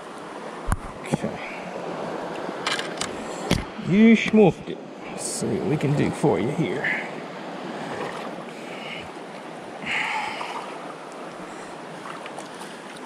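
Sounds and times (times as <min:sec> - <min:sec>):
water swish: 0:05.0 - 0:13.0.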